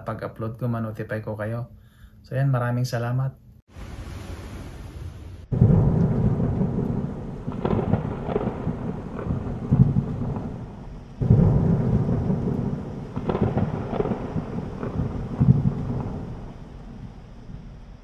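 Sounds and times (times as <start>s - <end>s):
loud thunderclap: 3.7s - 18.0s
rain: 3.7s - 18.0s
rolling thunder: 3.7s - 18.0s.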